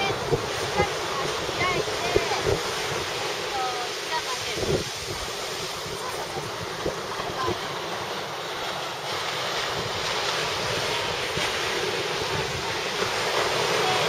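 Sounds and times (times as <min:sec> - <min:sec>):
ocean surf breaking: 0:00.0 - 0:14.0
wind buffeting microphone: 0:00.0 - 0:14.0.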